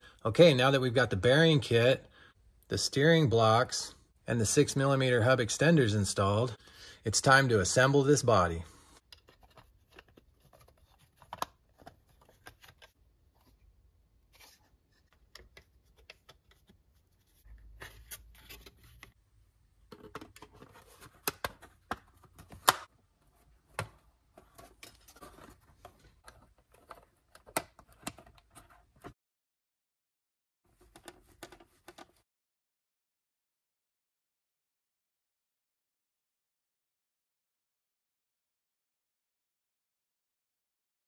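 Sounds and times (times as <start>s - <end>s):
plastic panels clicking and scraping: 23.6s - 29.1s, 30.8s - 32.2s.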